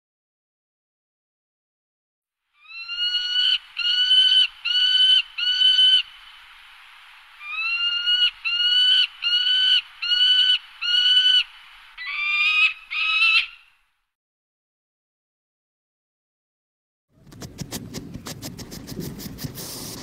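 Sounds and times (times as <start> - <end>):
waterfowl honking: 7.4 - 13.7.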